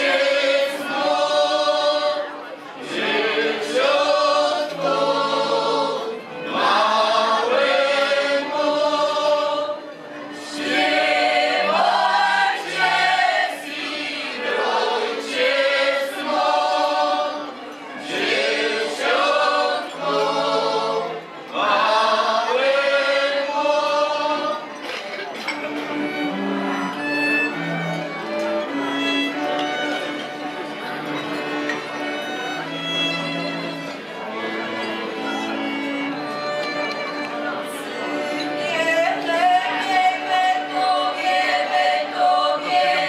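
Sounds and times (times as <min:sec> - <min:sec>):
group singing without instruments: 0:00.0 - 0:24.8, 0:38.6 - 0:43.0.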